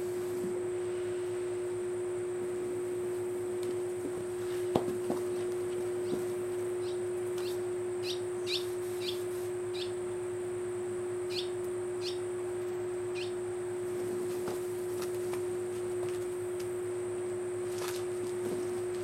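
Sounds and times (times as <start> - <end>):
steady low hum: 0.0 - 19.0
bird chirping: 6.8 - 9.9, 11.3 - 12.2, 13.1 - 13.4.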